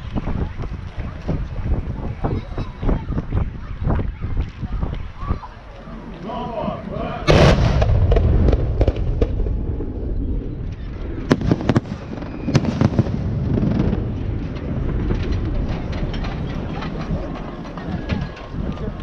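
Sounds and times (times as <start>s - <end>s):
firework cracks and bangs: 7.3s - 9.9s, 11.2s - 15.8s
firework boom with rumble: 7.3s - 16.0s.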